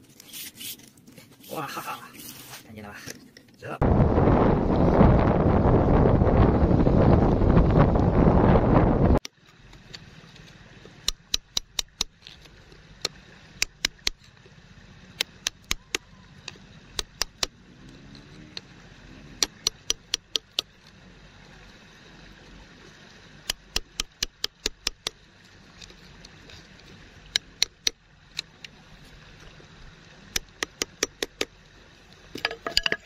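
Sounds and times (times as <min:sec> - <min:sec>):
wooden stick tapping on stone: 0:19.4 - 0:20.7, 0:30.4 - 0:31.5, 0:32.4 - 0:33.0.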